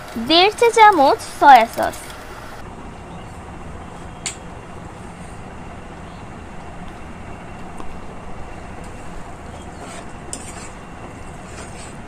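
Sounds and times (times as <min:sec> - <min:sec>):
metal turner scraping frying pan: 0:09.7 - 0:12.0.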